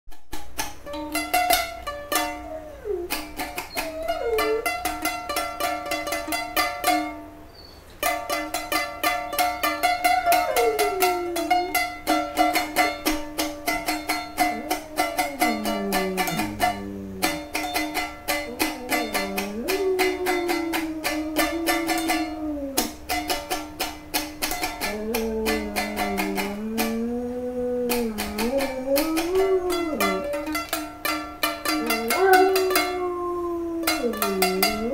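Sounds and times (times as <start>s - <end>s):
small stringed instrument strummed: 0.1s - 34.9s
wordless voice singing long tones: 14.6s - 17.4s.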